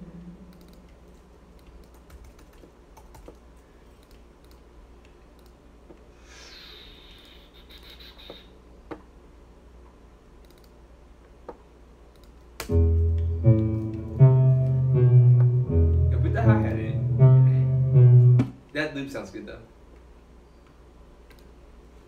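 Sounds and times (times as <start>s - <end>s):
low steady hum: 0.0s - 6.3s, 8.5s - 22.0s
keyboard and mouse clicks: 0.5s - 6.1s, 10.4s - 10.8s, 11.4s - 12.7s, 13.5s - 14.8s, 21.2s - 21.5s.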